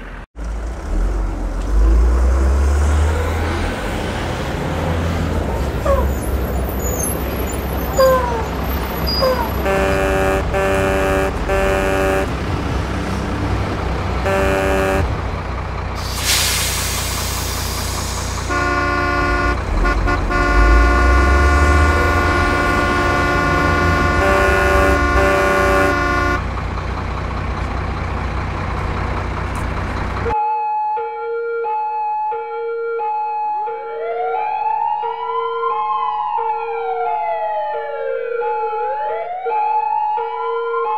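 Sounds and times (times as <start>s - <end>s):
diesel engine rumble: 0.0s - 30.4s
multi-tone truck horn: 5.8s - 13.4s, 14.0s - 26.5s
air brake hiss: 16.0s - 18.5s.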